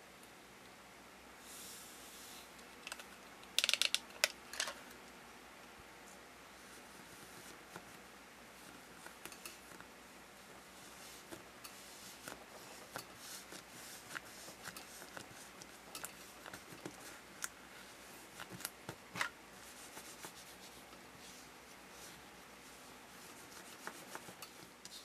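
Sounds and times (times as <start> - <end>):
hands kneading toy dough: 6.7 - 25.0.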